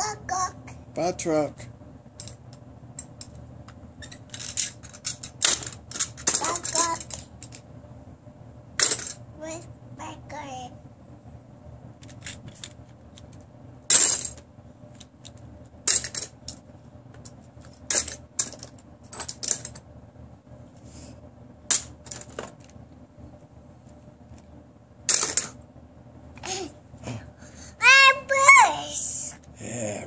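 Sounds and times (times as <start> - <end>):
toy cars clattering into bin: 13.9 - 14.4, 15.9 - 16.3, 17.9 - 19.8, 25.1 - 25.6.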